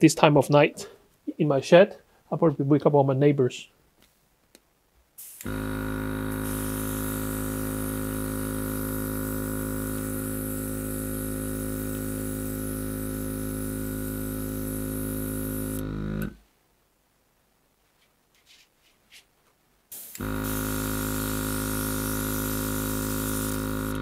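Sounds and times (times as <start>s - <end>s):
airbrush spraying hiss: 5.2s - 5.6s, 6.3s - 15.8s, 19.9s - 24.0s
airbrush compressor humming: 5.2s - 16.4s, 20.0s - 24.0s.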